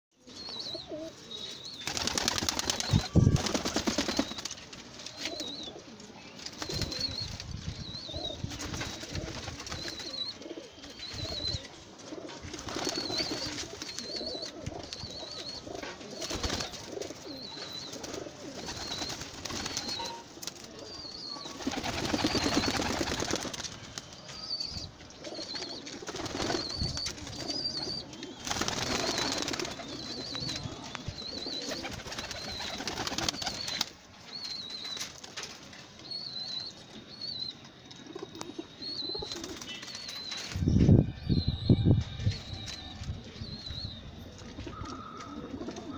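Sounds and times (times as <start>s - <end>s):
pigeons cooing softly: 0.2s - 4.4s, 5.1s - 23.6s, 24.2s - 34.7s, 38.0s - 40.4s, 41.1s - 45.9s
wings flapping: 1.8s - 4.8s, 8.4s - 10.2s, 12.5s - 14.3s, 16.2s - 17.0s, 18.0s - 20.7s, 21.5s - 24.0s, 25.9s - 27.5s, 28.4s - 30.6s, 31.6s - 34.0s.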